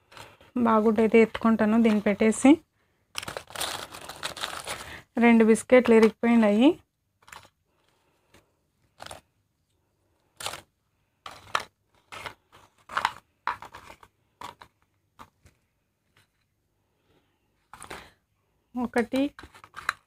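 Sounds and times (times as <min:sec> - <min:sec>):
plastic wrappers crinkling: 0:00.0 - 0:06.6, 0:07.2 - 0:09.2, 0:10.3 - 0:15.4.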